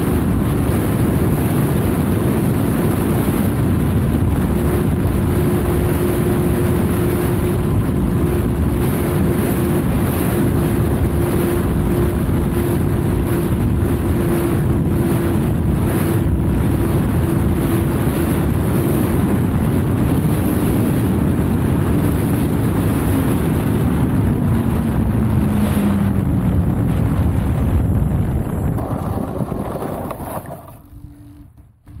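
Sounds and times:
wind buffeting microphone: 0:00.0 - 0:32.0.

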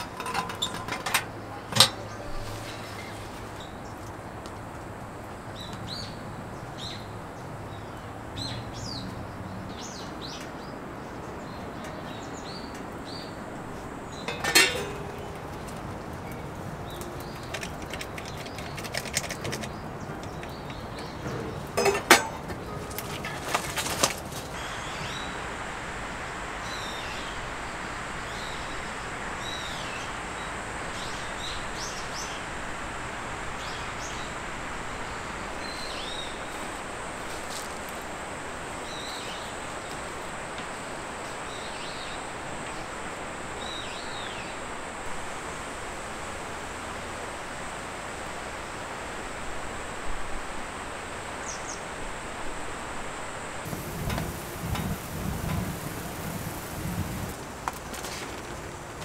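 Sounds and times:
steady hiss: 0:20.5 - 0:59.0.

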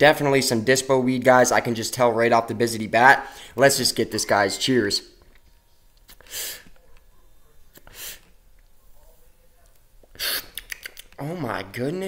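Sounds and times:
man puffing breathy draws: 0:10.1 - 0:10.7.

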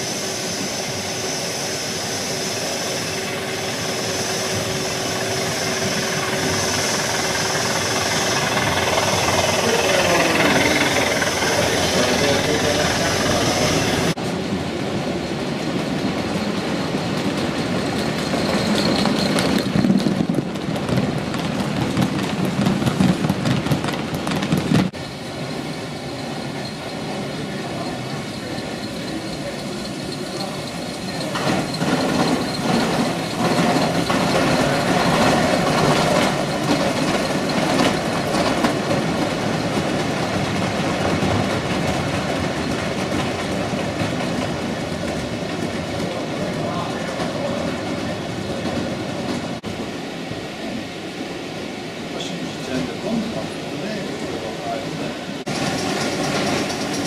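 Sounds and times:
model train wheels rumbling on rail: 0:00.0 - 0:50.8, 0:52.1 - 0:57.0.

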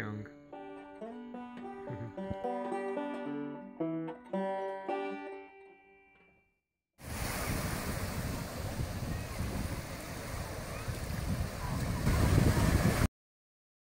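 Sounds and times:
sea surf washing in shallows: 0:07.0 - 0:13.1
wind rumbling on microphone: 0:07.0 - 0:13.1.

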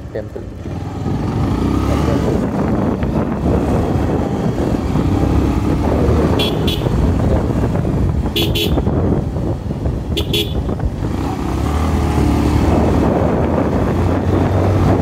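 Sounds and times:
motorcycle engine running: 0:00.0 - 0:11.6
wind rushing on microphone: 0:00.6 - 0:15.0
horn beeps: 0:06.3 - 0:07.0.

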